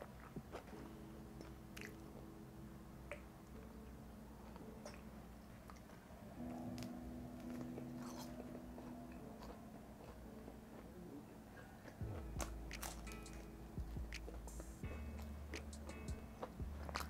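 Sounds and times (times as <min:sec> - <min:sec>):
pizza crust crunching: 0:06.6 - 0:13.5.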